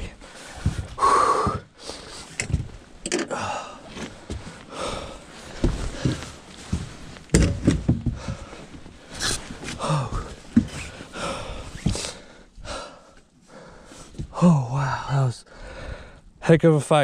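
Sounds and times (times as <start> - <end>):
man breathing hard and gasping: 0.1 - 2.4, 3.3 - 6.5, 8.0 - 16.4
knocks and thumps on boat: 7.3 - 8.5.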